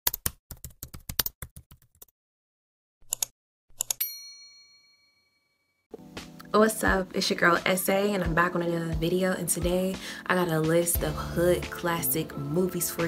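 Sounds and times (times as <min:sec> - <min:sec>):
keyboard typing clicks: 0:00.0 - 0:02.1, 0:03.1 - 0:04.0
bright bell ding: 0:04.0 - 0:05.5.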